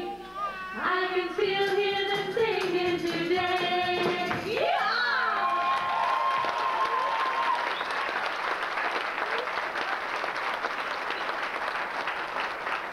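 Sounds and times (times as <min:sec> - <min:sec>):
audience applauding: 0:05.2 - 0:12.9.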